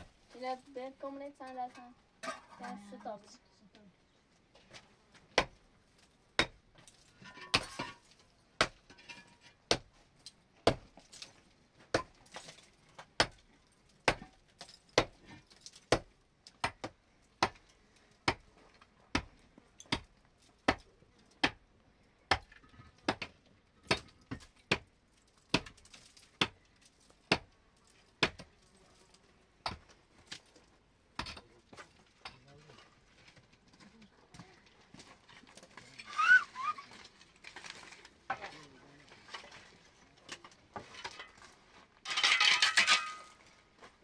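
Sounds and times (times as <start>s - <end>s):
tool clinking on brick: 7.1s - 8.1s, 40.3s - 43.4s.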